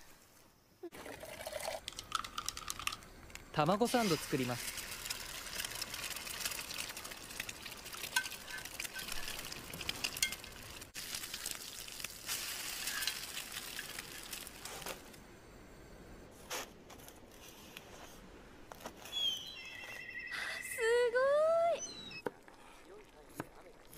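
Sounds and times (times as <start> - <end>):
egg sizzling in a pan: 1.3 - 15.1.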